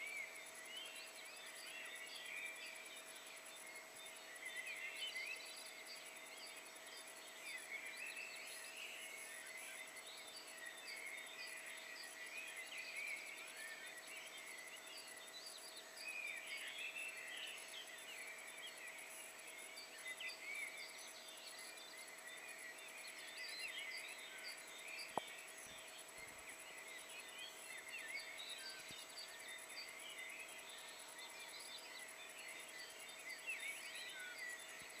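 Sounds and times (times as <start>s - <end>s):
songbirds chirping and whistling: 0.0s - 35.0s.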